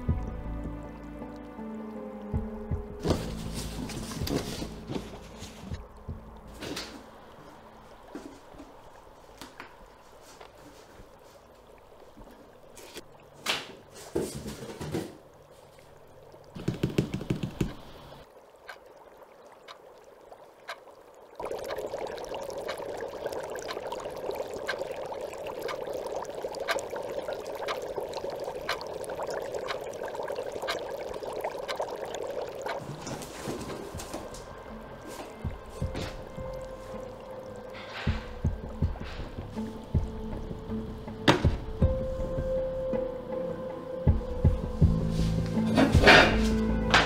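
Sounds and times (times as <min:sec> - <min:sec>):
tap water running into sink: 0:16.6 - 0:18.0, 0:21.4 - 0:34.5.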